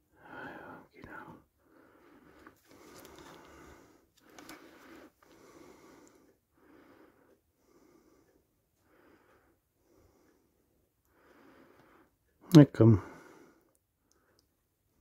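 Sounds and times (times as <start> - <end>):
soft breathing: 0.0 - 15.0.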